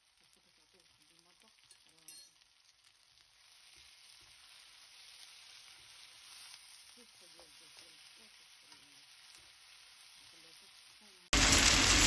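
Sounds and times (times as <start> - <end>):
onions sizzling in oil: 0.0 - 12.0
wooden spatula stirring: 3.4 - 10.1.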